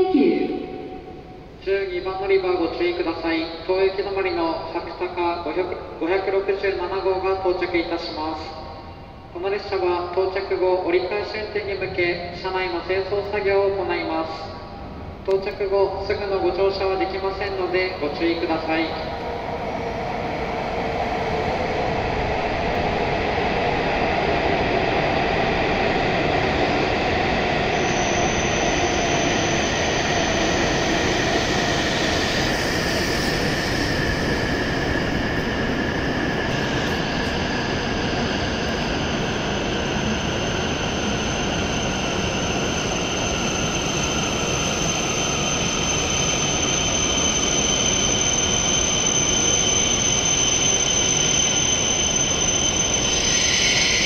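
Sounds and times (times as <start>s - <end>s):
train rumbling past: 0.0s - 54.0s
train brake whine: 27.3s - 54.0s
high steady whistle: 27.6s - 37.5s, 40.1s - 54.0s.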